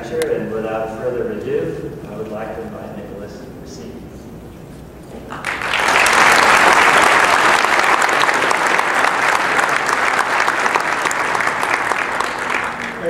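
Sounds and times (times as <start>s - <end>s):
audience applauding: 5.3s - 13.0s.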